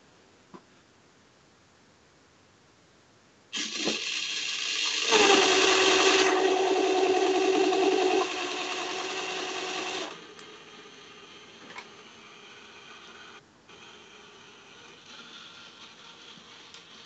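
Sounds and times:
claw machine motors whirring: 3.6 - 17.0.

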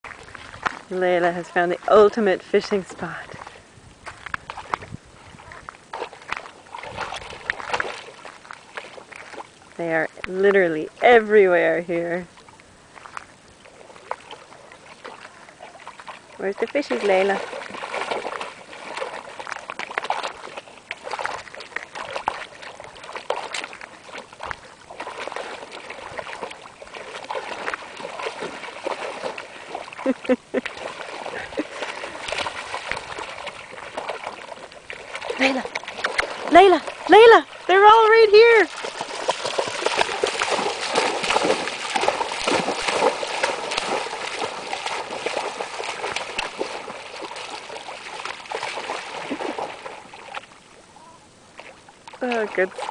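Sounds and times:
dog splashing through water: 0.0 - 50.8, 51.6 - 52.9.

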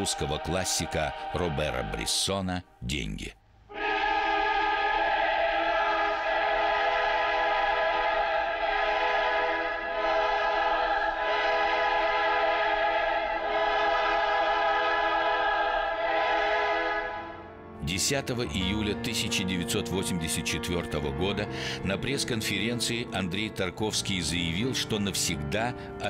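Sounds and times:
choir singing sustained chords: 0.0 - 2.4, 3.6 - 17.8.

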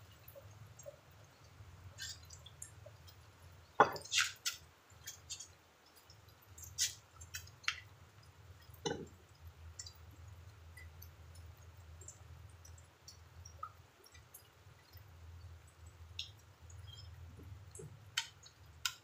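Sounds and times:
plates and tableware clinking: 3.8 - 4.3.

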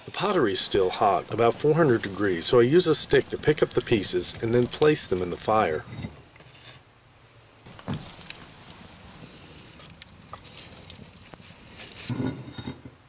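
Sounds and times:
clay pots clinking and scraping: 0.6 - 6.8, 11.9 - 13.0.

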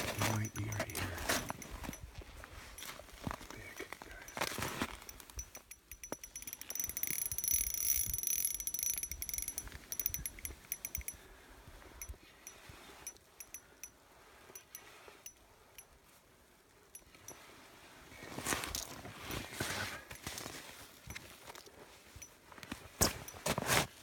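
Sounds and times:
fishing reel clicking: 5.1 - 11.2.

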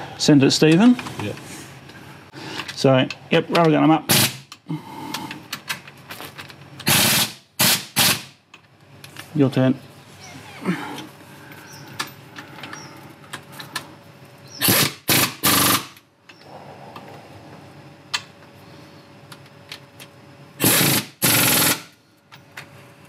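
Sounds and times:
air impact wrench hammering: 4.1 - 4.6, 6.8 - 8.4, 14.6 - 16.0, 20.6 - 22.0.

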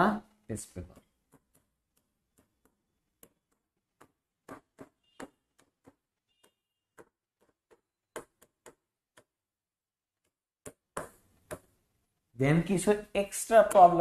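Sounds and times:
pen tapping on board: 0.9 - 9.4, 10.2 - 11.8
pen squeaks: 4.7 - 7.6.

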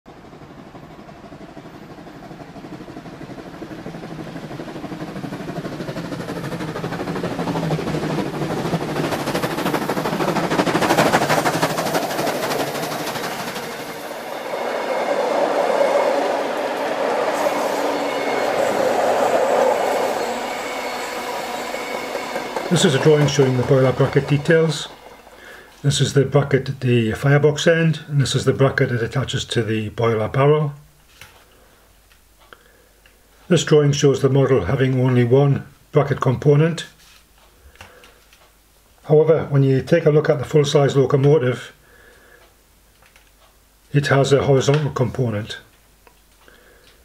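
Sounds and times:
wheels clattering on rail: 0.1 - 25.8
steam locomotive running: 0.1 - 29.6.

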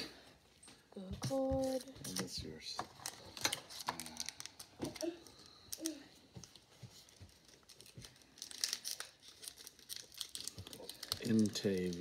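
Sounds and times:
foil wrapper crinkling and tearing: 3.0 - 12.0.

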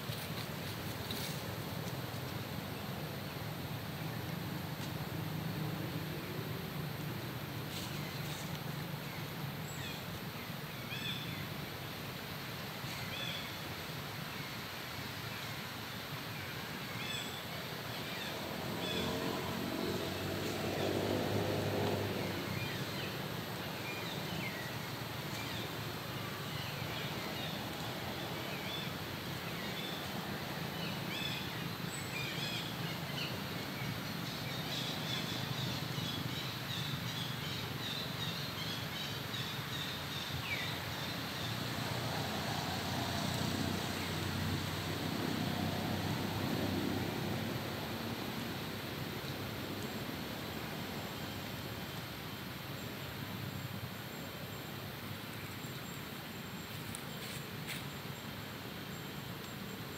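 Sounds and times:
engine drone: 18.5 - 22.7.

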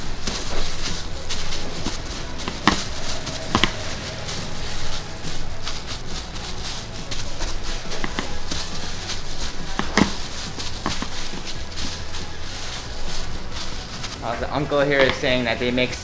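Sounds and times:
sharp taps: 0.0 - 7.2
rolling pin on dough: 0.0 - 16.0
room hum: 0.0 - 16.0.

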